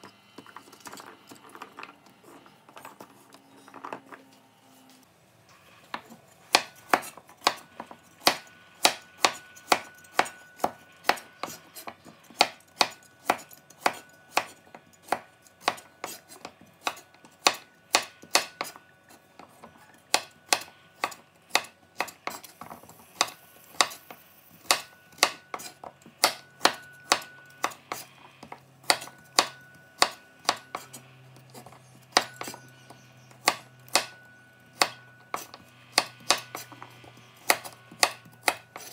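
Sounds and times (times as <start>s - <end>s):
knife chopping on wooden board: 5.9s - 18.8s, 19.4s - 34.2s, 34.8s - 38.9s.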